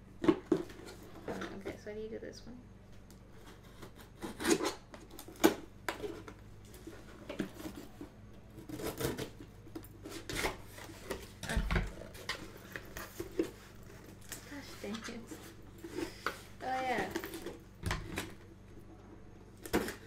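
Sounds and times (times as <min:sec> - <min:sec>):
scissors cutting tape: 0:03.6 - 0:05.6.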